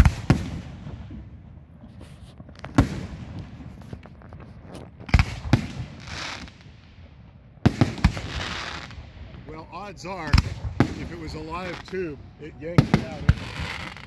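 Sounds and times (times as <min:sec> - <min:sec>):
fireworks bangs: 0:00.0 - 0:14.0
firework hiss: 0:01.9 - 0:06.9, 0:07.7 - 0:09.1, 0:10.0 - 0:14.0.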